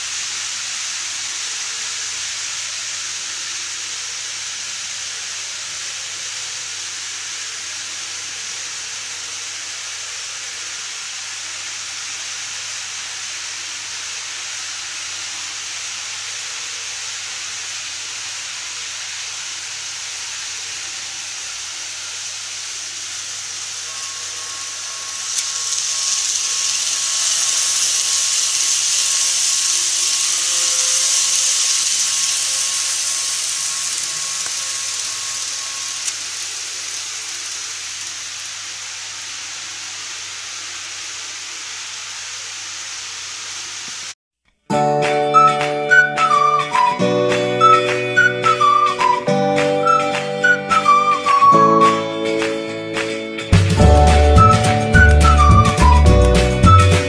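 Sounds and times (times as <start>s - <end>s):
faint motor whine: 0.0s - 44.1s
steady hiss: 0.0s - 44.2s, 45.0s - 57.0s
model train wheels rushing: 13.6s - 44.2s, 53.5s - 57.0s.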